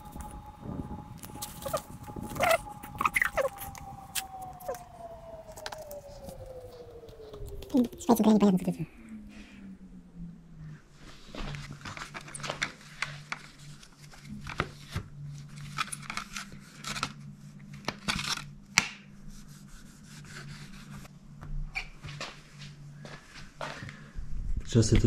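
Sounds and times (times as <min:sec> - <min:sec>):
hands rubbing and scraping plastic: 0:00.0 - 0:06.4
steady low hum: 0:00.0 - 0:24.9.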